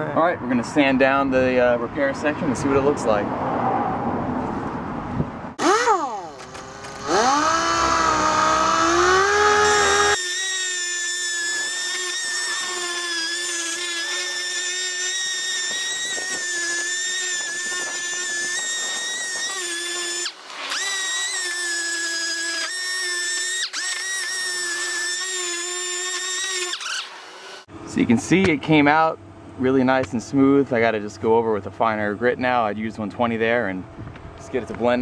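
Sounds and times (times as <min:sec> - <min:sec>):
air sander high whine: 0:05.6 - 0:28.1.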